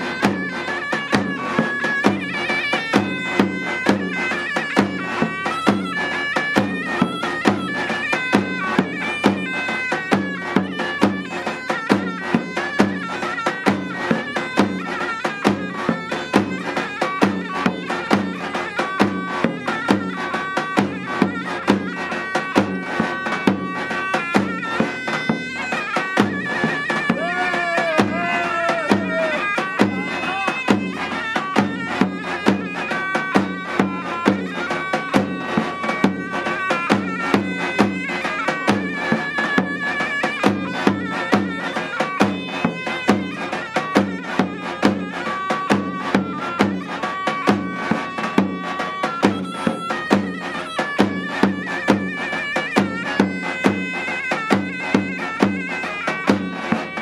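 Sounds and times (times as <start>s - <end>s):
zurna folk melody: 0.0s - 57.0s.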